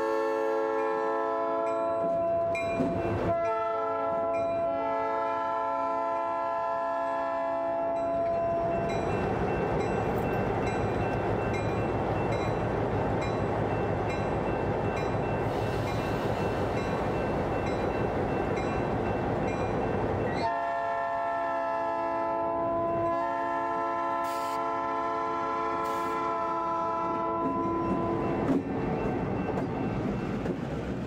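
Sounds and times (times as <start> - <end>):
diesel locomotive engine rumble: 0.0 - 31.0
steady multi-tone horn chord: 3.3 - 8.6, 20.5 - 28.2.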